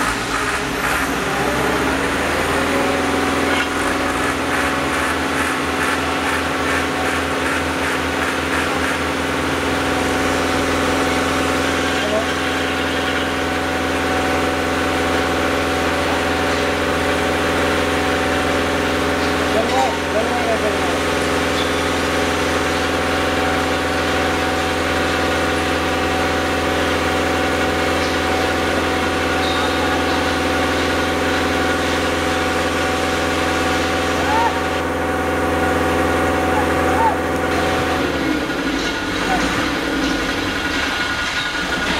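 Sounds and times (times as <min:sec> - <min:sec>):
lifting machine motor running: 0:00.0 - 0:41.9
rope hoist mechanical drone: 0:00.0 - 0:41.9
regular clatter: 0:38.6 - 0:41.9.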